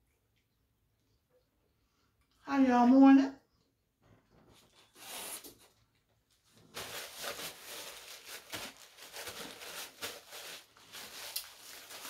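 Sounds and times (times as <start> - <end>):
paper wrapper crinkling: 6.4 - 12.0.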